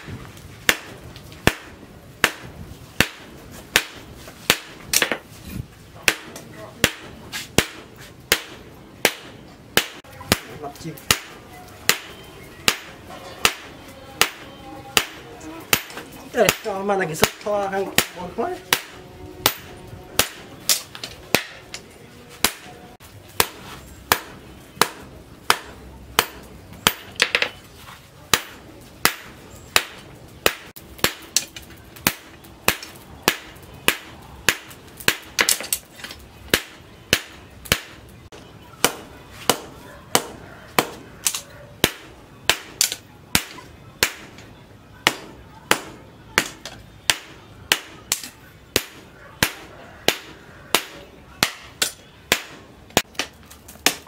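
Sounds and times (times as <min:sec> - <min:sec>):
hammer striking metal on anvil: 0:06.1 - 0:21.8, 0:23.4 - 0:27.6.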